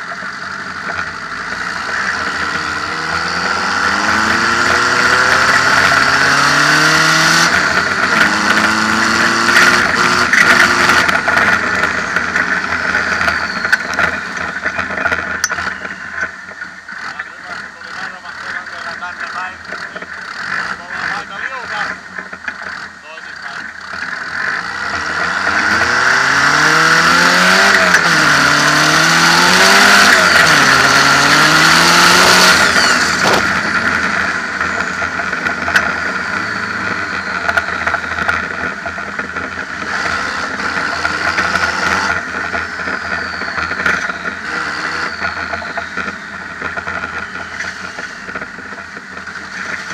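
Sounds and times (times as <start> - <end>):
diesel engine revving: 0.0 - 49.9
turbo whine: 0.0 - 49.9
faint falling whistles: 36.2 - 38.3, 42.8 - 47.9.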